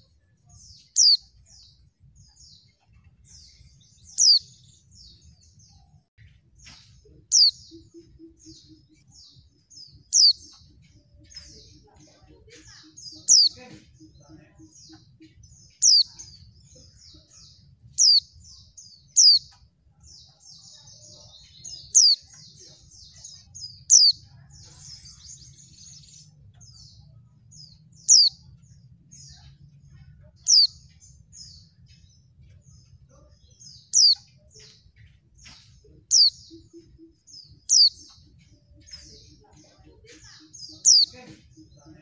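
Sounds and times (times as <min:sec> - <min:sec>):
bird twittering: 0:00.8 - 0:01.5, 0:03.0 - 0:04.8, 0:06.6 - 0:09.3, 0:10.0 - 0:11.8, 0:12.4 - 0:19.7, 0:21.4 - 0:24.3, 0:25.0 - 0:42.0.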